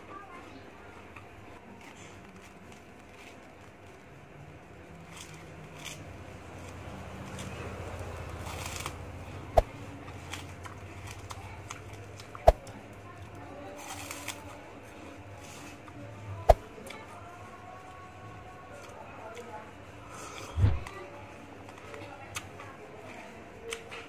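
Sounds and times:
low steady hum: 0.0 - 21.8
person biting and chewing: 5.0 - 12.6, 13.9 - 14.4.

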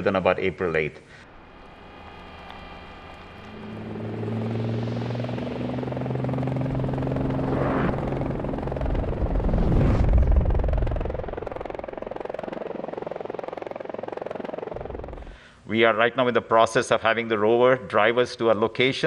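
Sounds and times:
low mechanical hum: 1.1 - 15.6
loud whooshing rumble: 1.2 - 12.5.

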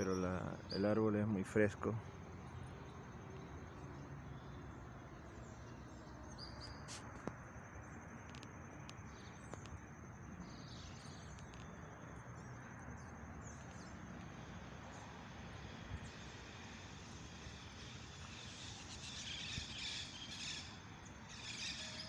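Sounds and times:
bird chirps: 0.0 - 7.1, 17.8 - 22.0
high-pitched insect trill: 0.0 - 22.0
faint clicks: 8.2 - 9.8, 11.0 - 11.8.

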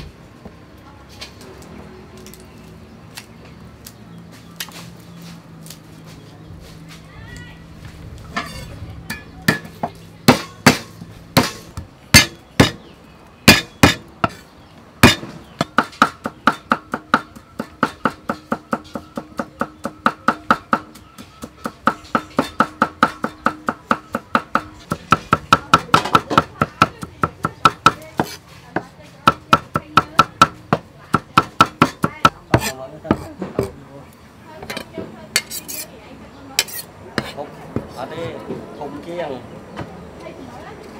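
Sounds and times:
cleaver chopping on wooden block: 9.5 - 12.8, 13.4 - 14.4, 15.0 - 33.8.

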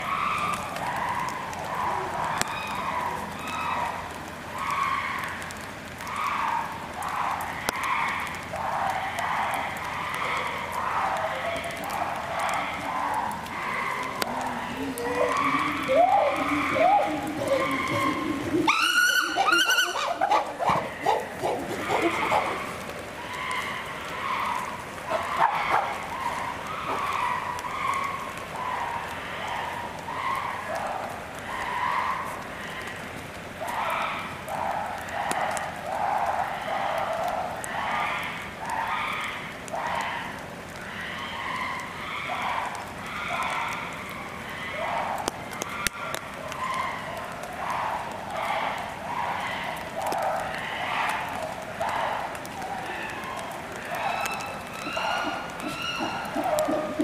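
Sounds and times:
chimpanzees hooting: 11.8 - 22.9, 52.3 - 57.0
sharp chimpanzee call: 14.9 - 22.8, 54.0 - 57.0.

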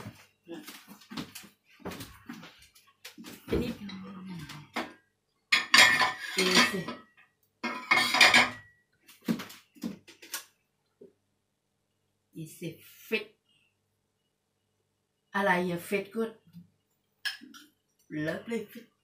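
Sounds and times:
plates and saucepan clattering: 5.5 - 8.7.

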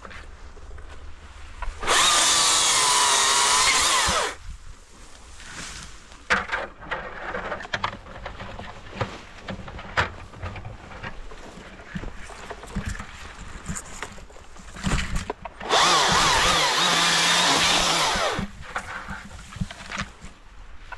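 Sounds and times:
branches rustling: 0.0 - 20.9
chainsaw whining: 1.8 - 4.4, 15.6 - 18.7.

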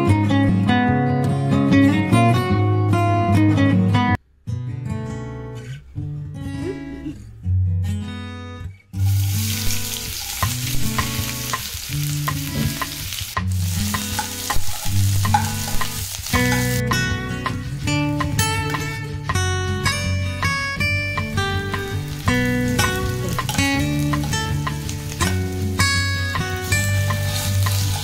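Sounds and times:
onions sizzling in hot oil: 9.0 - 16.8, 21.5 - 28.0
background music: 9.0 - 28.0
metal spoon scraping a pan: 13.9 - 16.8, 26.7 - 28.0.

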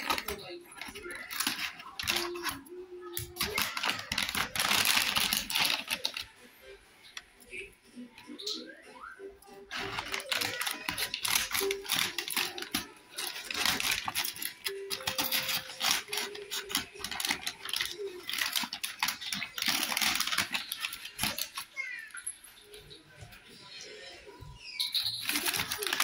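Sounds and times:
paper bag crinkling: 0.0 - 6.3, 9.7 - 21.7, 25.0 - 26.0.

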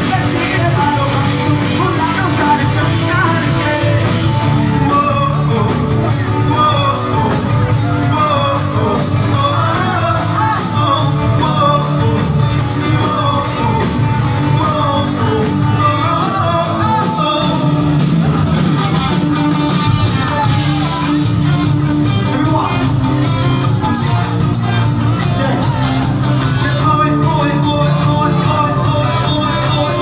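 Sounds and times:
live rock band playing: 0.0 - 30.0
person singing: 0.0 - 30.0.

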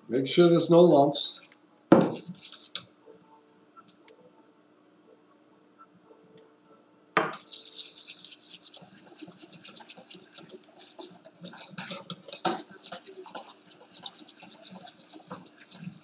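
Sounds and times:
utensil knocking on bowl: 1.9 - 2.3, 9.1 - 15.7
batter being beaten in bowl: 1.9 - 2.8, 7.3 - 16.0.

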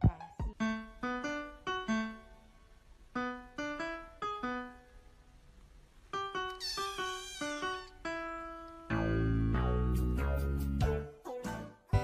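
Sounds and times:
piano melody: 0.3 - 2.5, 3.2 - 5.1, 6.2 - 10.6
cat meowing: 6.5 - 8.0.

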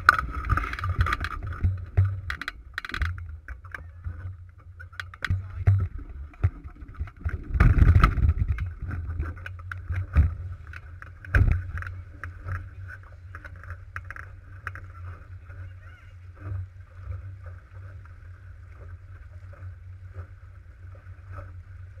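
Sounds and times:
wind buffeting microphone: 0.0 - 18.0
water rushing along hull: 0.0 - 22.0
knocks and thumps: 4.9 - 10.4, 11.2 - 12.6.

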